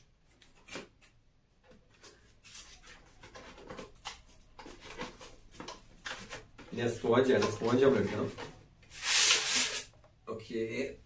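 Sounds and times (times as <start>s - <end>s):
cardboard and packing rustling: 1.7s - 8.7s.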